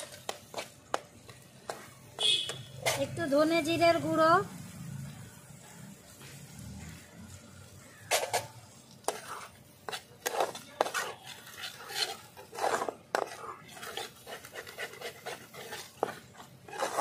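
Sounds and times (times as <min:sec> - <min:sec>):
metal spatula scraping a pan: 0:01.7 - 0:03.4, 0:08.0 - 0:17.0.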